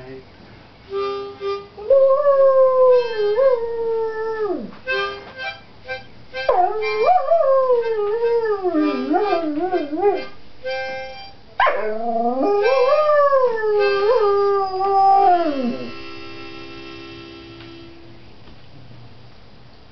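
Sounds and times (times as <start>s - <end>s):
dog howling: 1.8s - 4.7s, 6.5s - 10.3s, 11.6s - 16.0s.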